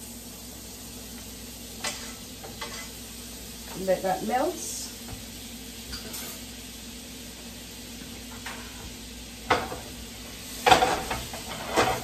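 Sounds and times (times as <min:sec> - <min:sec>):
butter sizzling in a skillet: 0:00.0 - 0:12.0
kitchenware clattering: 0:05.9 - 0:06.5, 0:09.5 - 0:10.0, 0:10.6 - 0:12.0.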